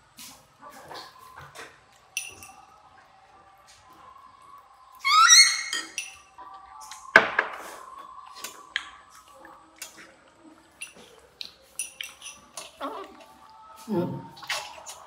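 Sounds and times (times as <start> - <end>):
utensils clinking on ceramic bowls: 2.2 - 2.6, 5.7 - 6.3, 10.8 - 11.1, 11.8 - 12.9.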